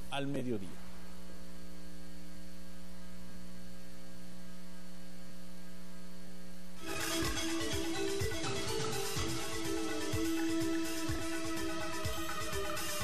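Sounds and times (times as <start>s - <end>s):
electrical mains hum: 0.0s - 13.0s
station ident jingle: 6.8s - 13.0s.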